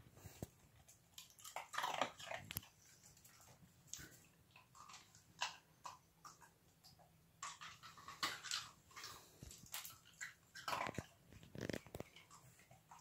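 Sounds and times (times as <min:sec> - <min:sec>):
puppy crunching ice: 0:07.5 - 0:12.4.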